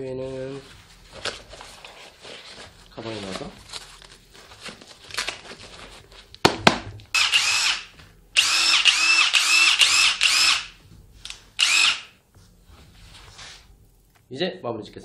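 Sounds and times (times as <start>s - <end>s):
impact driver motor whine: 7.2s - 10.8s, 11.6s - 12.1s.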